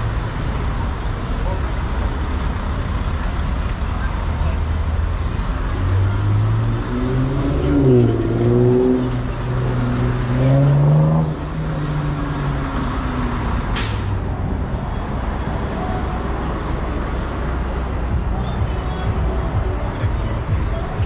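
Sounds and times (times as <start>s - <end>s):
road noise: 0.0s - 21.0s
vehicle engine accelerating: 0.0s - 21.0s
brief sharp hiss: 13.8s - 14.2s.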